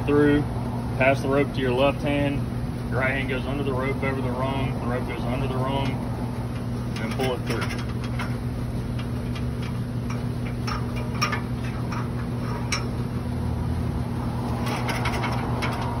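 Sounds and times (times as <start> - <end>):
low machine hum: 0.0 - 16.0
rope tapping aluminium ladder: 5.8 - 13.0, 14.5 - 16.0.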